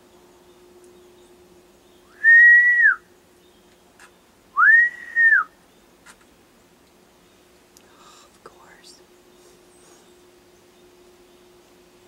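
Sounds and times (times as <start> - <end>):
short whistles: 2.1 - 3.0, 4.6 - 5.6.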